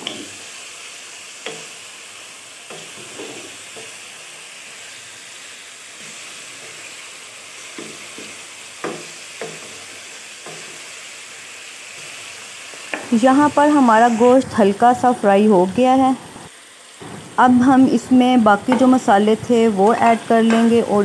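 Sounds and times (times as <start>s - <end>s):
meat sizzling in oil: 0.0s - 21.0s
spatula scraping a pan: 2.7s - 4.0s.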